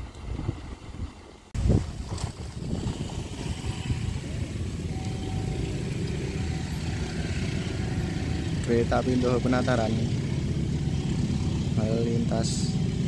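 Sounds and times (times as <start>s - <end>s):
diesel locomotive engine rumble: 1.6s - 13.0s.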